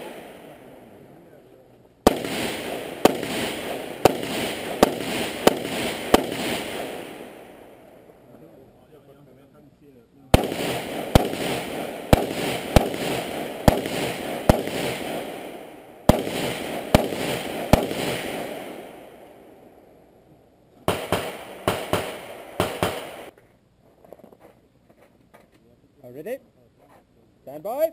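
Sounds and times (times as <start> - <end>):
rifle shots echoing: 0.0 - 1.4, 2.0 - 8.2, 10.3 - 19.8, 20.9 - 23.3.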